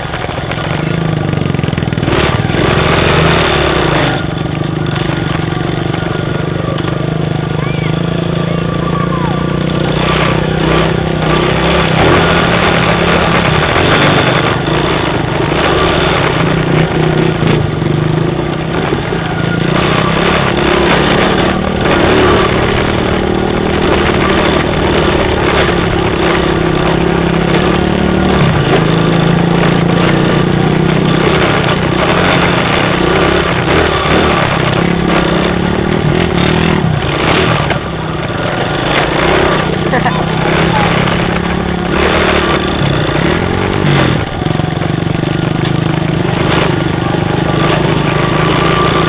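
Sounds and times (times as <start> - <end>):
vehicle engine running: 0.0 - 49.0.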